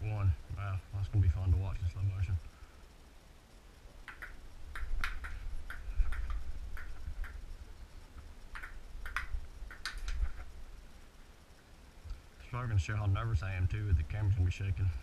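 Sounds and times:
table tennis ball clicking: 4.0s - 7.4s, 8.5s - 10.2s.

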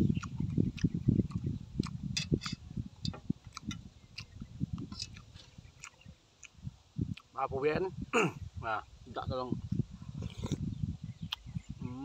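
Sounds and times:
wet chewing and smacking: 0.0s - 7.4s, 10.2s - 11.6s.

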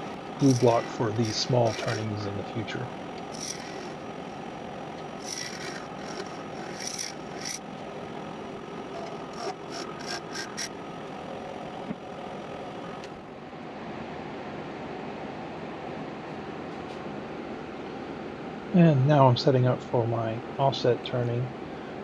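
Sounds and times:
turning tool cutting wood: 0.0s - 2.4s, 3.0s - 4.4s, 5.0s - 7.6s, 8.8s - 10.7s
wood lathe motor hiss: 0.0s - 7.7s, 8.4s - 10.8s.

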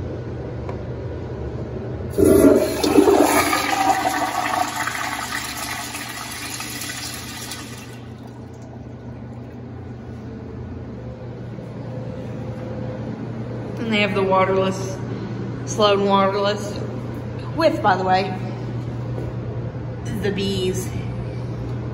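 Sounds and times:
toilet flush rush: 2.1s - 8.6s
liquid washing in bowl: 2.2s - 9.6s.

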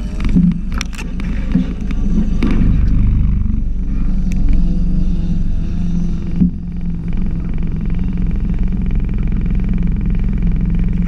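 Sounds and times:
sharp clicks and knocks: 0.0s - 3.4s
car engine idling: 0.0s - 11.0s.

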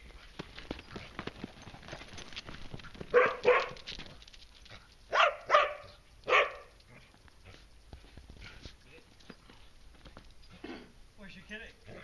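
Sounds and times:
dog barking: 3.1s - 3.9s, 5.1s - 6.7s.

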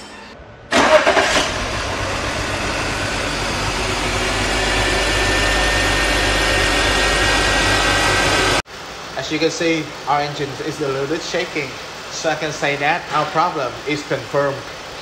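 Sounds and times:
car engine starting and idling: 0.7s - 8.6s
thin steady whine: 1.8s - 15.0s.

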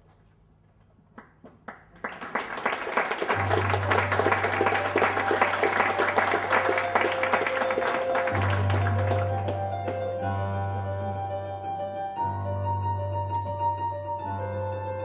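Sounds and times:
audience applause: 1.6s - 10.0s
music with held notes: 3.3s - 15.0s.

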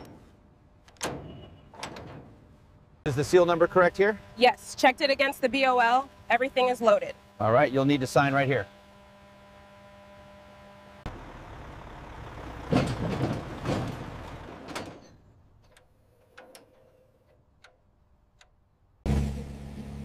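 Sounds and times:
truck tyres rumbling over steel plates: 0.0s - 3.0s, 11.1s - 17.9s
steady hum: 2.5s - 11.1s.

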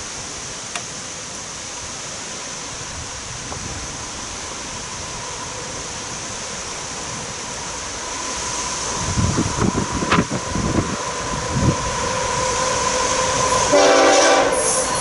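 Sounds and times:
distant freight train locomotives: 0.0s - 15.0s
wind on microphone: 8.4s - 13.8s.

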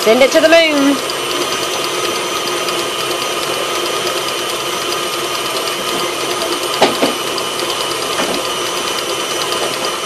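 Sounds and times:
faint regular ticking: 0.0s - 9.6s
stand mixer motor whine: 0.0s - 10.0s.

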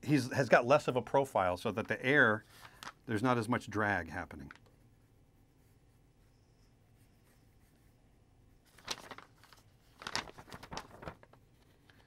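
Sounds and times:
pencil scratching on paper: 4.6s - 8.6s.

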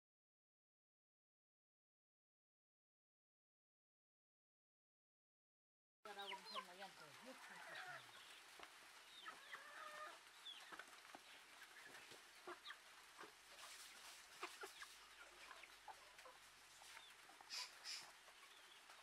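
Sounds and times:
chickens clucking: 6.1s - 19.0s.

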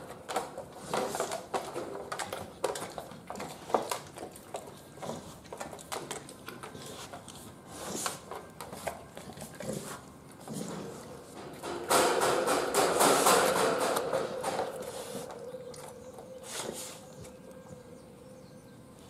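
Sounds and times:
dog licking and chewing food: 0.0s - 11.5s, 14.5s - 17.8s.

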